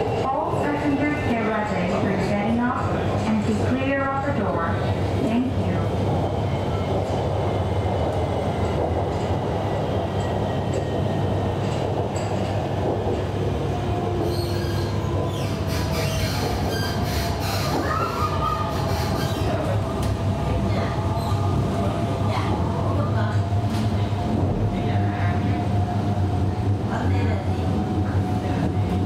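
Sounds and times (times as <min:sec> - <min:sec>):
train interior rumble: 0:00.0 - 0:29.0
wheel squeals and whines: 0:14.2 - 0:19.6.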